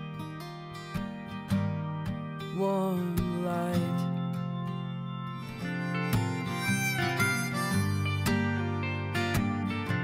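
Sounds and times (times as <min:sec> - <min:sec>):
strummed acoustic guitar: 0:00.0 - 0:10.0
person singing: 0:02.6 - 0:04.2.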